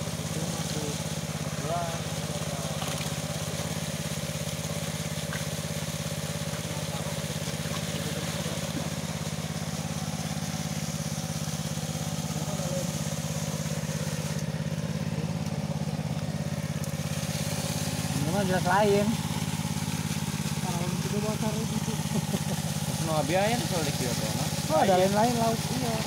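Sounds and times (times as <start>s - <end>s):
small engine humming: 0.0s - 26.0s.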